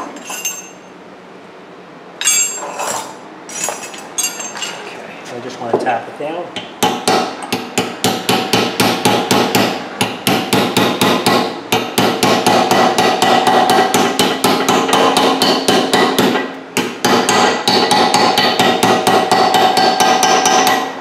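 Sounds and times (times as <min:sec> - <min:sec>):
hammer striking steel punch: 0:06.6 - 0:21.0.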